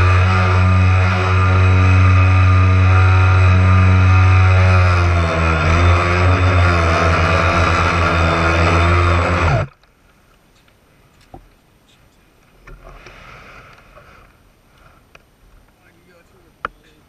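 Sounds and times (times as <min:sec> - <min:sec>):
toy boat motor running: 0:00.0 - 0:09.8
water noise: 0:12.4 - 0:15.8.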